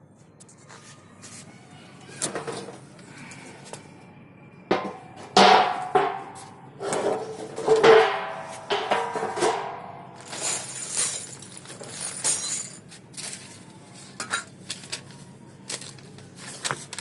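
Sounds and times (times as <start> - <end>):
metal and plastic clinks: 10.2 - 17.0.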